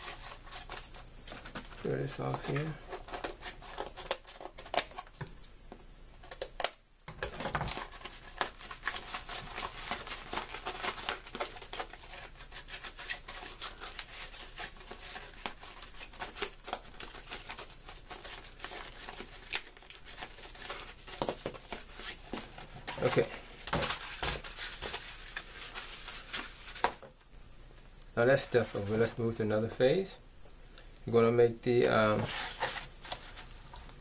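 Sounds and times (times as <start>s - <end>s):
cardboard and paper rustling: 0.0s - 5.2s, 7.2s - 27.1s, 31.8s - 33.9s.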